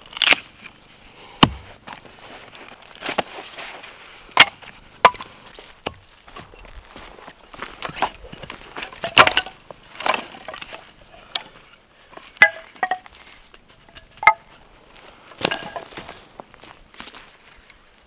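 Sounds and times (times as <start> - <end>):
firewood clattering onto a pile: 4.4 - 6.6, 7.6 - 11.6, 12.2 - 14.6, 15.4 - 16.2
footsteps on dry pine needles: 4.7 - 9.0, 14.5 - 17.6.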